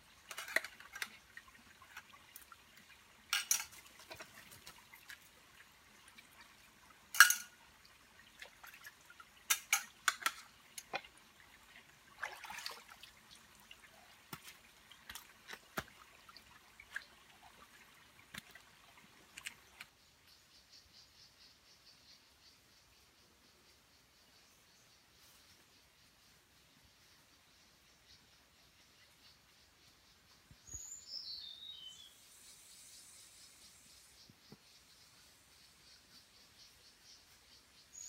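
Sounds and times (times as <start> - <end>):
water splashing and pouring: 0.0 - 19.8
metal cookware clinking: 3.3 - 3.8, 7.2 - 7.5.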